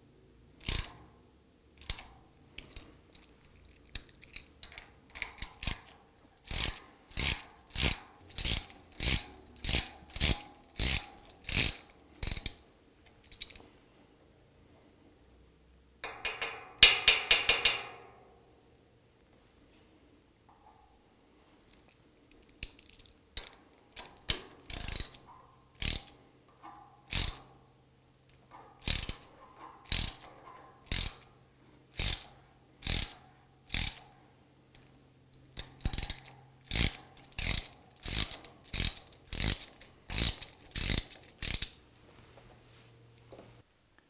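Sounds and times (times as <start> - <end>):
hand ratchet clicking: 0.6 - 1.0, 1.8 - 12.6, 22.4 - 27.5, 28.6 - 30.3, 30.9 - 31.3, 32.0 - 34.1, 35.4 - 41.8.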